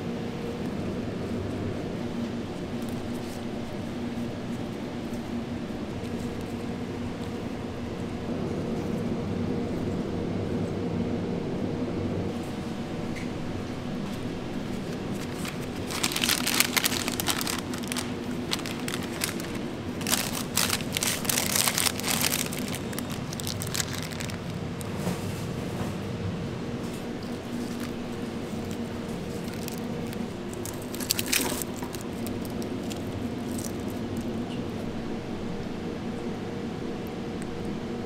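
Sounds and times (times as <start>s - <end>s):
kitchen hum: 12.3s - 35.0s
wrapping paper crinkling: 14.6s - 25.0s, 27.2s - 34.4s.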